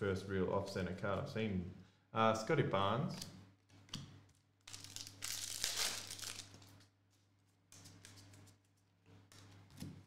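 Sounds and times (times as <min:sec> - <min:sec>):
foil wrapper tearing and crinkling: 0:04.6 - 0:06.7.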